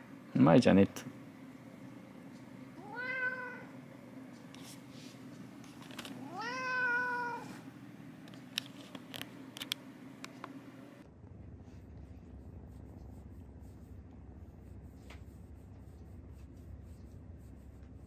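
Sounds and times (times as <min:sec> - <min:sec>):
cat meowing: 0:02.8 - 0:03.7, 0:06.2 - 0:07.6.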